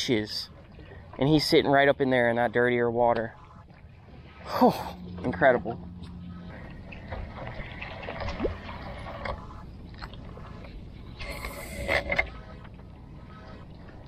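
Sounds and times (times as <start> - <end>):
fishing rod and reel clicks: 11.2 - 12.4.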